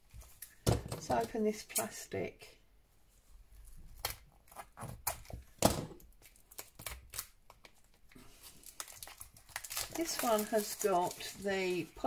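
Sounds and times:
plastic wrap crinkling: 4.0 - 12.0
scissors snipping plastic wrap: 8.8 - 11.5.

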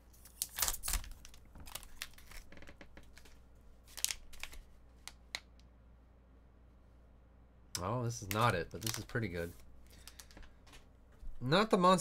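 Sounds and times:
foil pouch crinkling: 0.2 - 5.2, 8.2 - 10.3.

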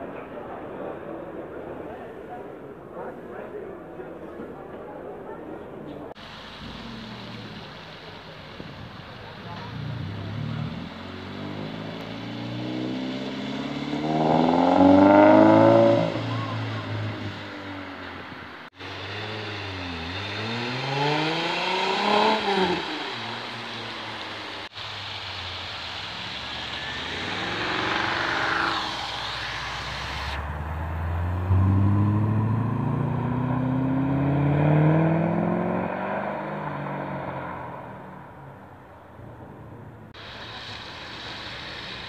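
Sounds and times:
tyre hiss on wet road: 6.1 - 38.3, 40.1 - 42.0
car passing close: 6.1 - 42.0
sports car engines revving: 6.2 - 42.0.

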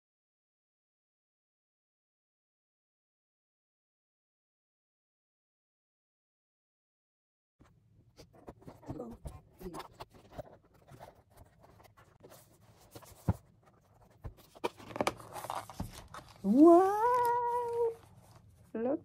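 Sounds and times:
paper rustling and scraping: 8.2 - 18.7.

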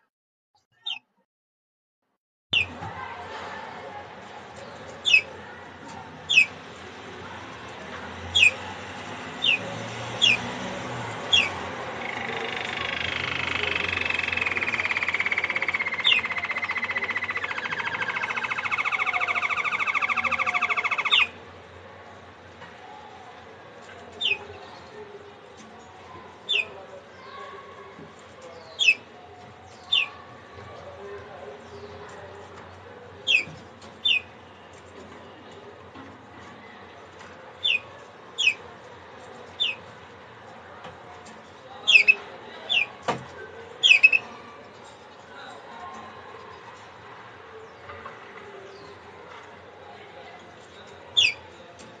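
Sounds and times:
canary trilling: 2.6 - 2.8, 4.7 - 5.4, 6.2 - 6.6, 8.3 - 21.4, 24.2 - 24.6, 28.5 - 29.1, 29.7 - 30.3, 33.2 - 34.4, 37.6 - 38.6, 39.5 - 39.9, 41.8 - 43.1, 43.8 - 44.4, 51.1 - 51.6.

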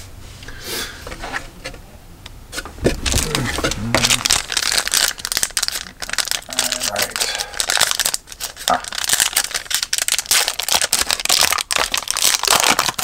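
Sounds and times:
wrapper and cards crinkling: 3.0 - 13.0.

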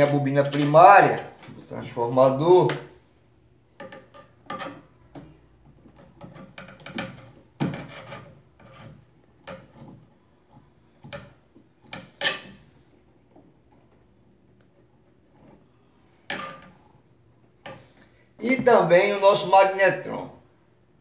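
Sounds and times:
wiring clicks and scrapes: 3.9 - 14.0.

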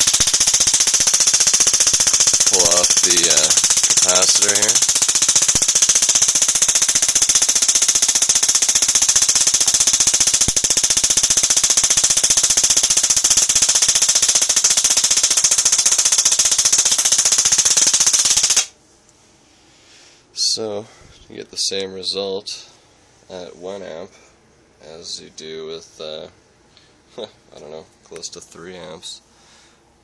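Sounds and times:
spark gap crackling buzz: 0.0 - 18.8.

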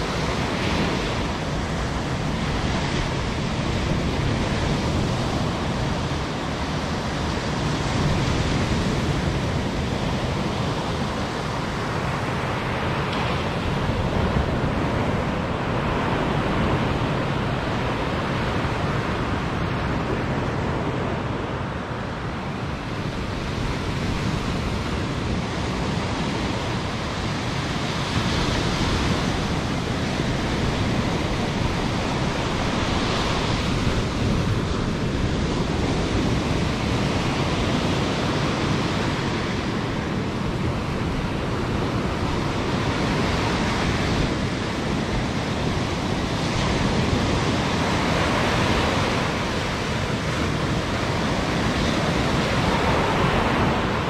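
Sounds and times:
wind on microphone: 0.0 - 54.0
surf breaking on beach: 22.4 - 54.0.

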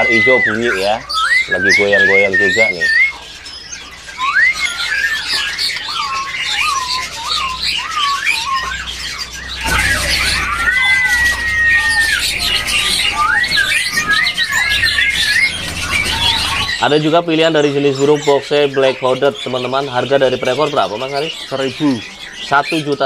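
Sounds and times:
bird singing whistled notes: 0.0 - 23.0
many birds chirping: 0.0 - 23.0.

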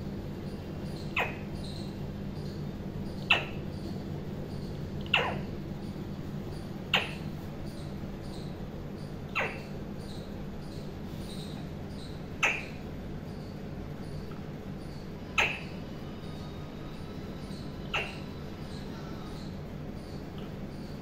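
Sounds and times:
steady low hum: 0.0 - 21.0
parakeet squeaking: 0.9 - 2.5, 3.1 - 3.6, 4.6 - 5.5, 6.9 - 8.5, 9.4 - 13.5, 14.8 - 20.2.

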